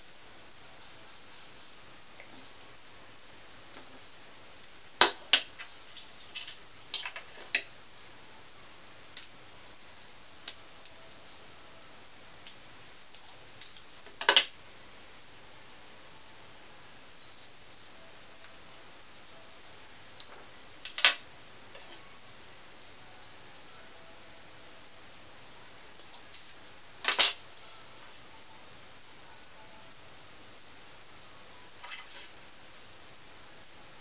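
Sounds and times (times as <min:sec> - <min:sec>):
pliers clicking and snapping: 0:26.0 - 0:26.6.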